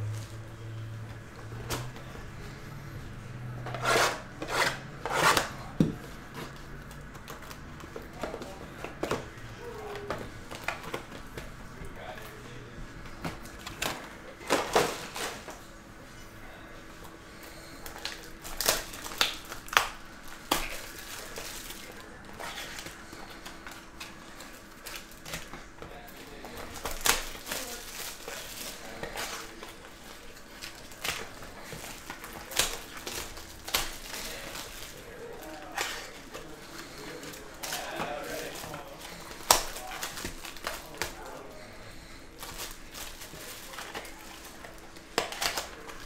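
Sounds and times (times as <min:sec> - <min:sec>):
plastic wrap crinkling: 0:16.9 - 0:46.0.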